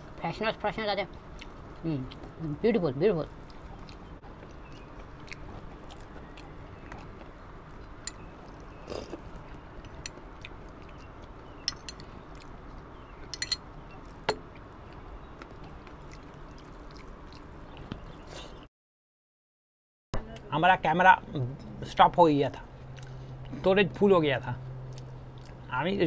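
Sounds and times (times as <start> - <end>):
chewing: 1.1 - 2.4, 3.2 - 18.6, 22.8 - 23.6, 24.6 - 25.8
metal spoon clicking on glass bowl: 13.3 - 13.6.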